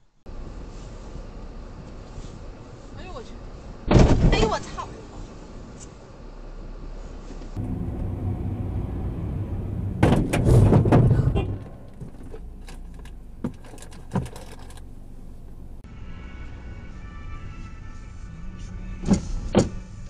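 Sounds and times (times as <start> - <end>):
car engine and road noise: 0.0 - 20.0
loud car crash: 7.6 - 11.9.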